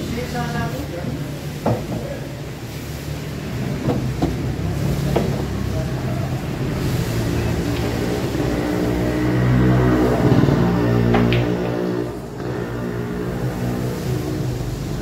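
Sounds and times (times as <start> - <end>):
pool balls clacking: 3.7 - 5.7, 10.1 - 12.1.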